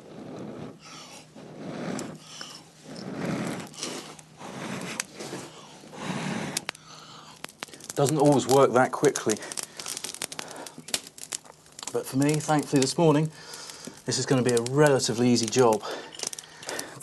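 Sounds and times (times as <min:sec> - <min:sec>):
person blowing on tinder: 0:00.0 - 0:07.8
straw crackling: 0:00.0 - 0:17.0.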